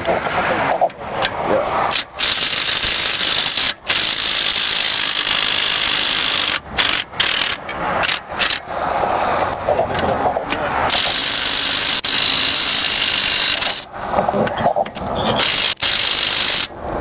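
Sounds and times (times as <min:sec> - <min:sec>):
power tool loosening lug nuts: 0:01.9 - 0:08.6, 0:10.9 - 0:13.9, 0:15.4 - 0:16.7.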